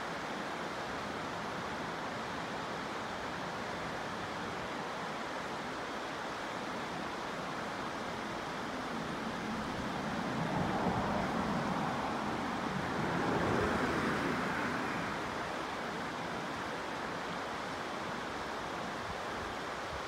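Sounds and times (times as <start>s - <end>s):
stream rushing over rocks: 0.0s - 20.0s.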